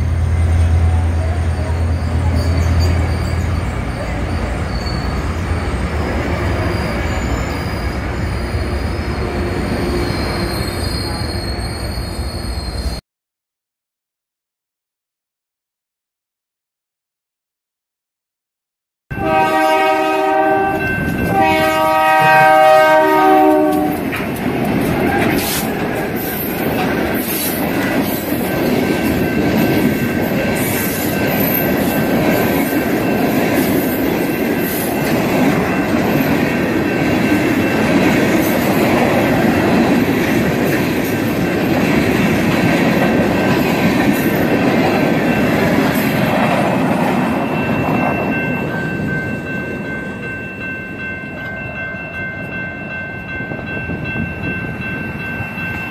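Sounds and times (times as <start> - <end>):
train rumbling past: 0.0 - 13.0, 19.1 - 55.9
faint high squeal: 1.2 - 13.0
diesel locomotive horn blasts: 19.1 - 24.0
clattering train wheels: 23.5 - 51.6.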